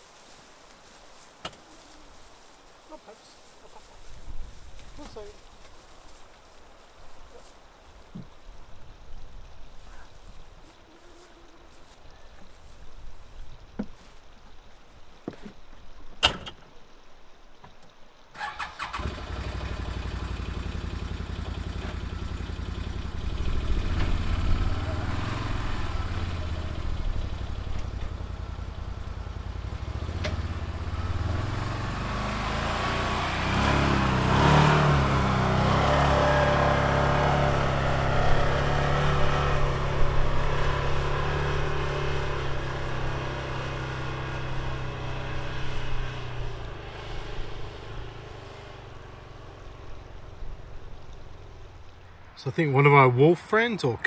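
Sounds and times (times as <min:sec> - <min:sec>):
utility vehicle engine: 0:18.4 - 0:52.4.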